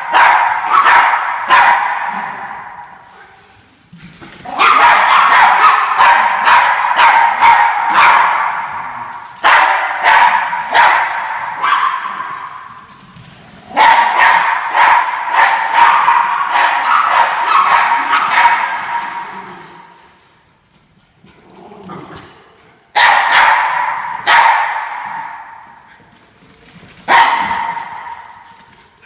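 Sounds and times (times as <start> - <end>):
dogs barking and yipping: 0.0 - 3.2, 4.5 - 12.8, 13.7 - 19.3, 23.0 - 25.6, 27.0 - 28.6.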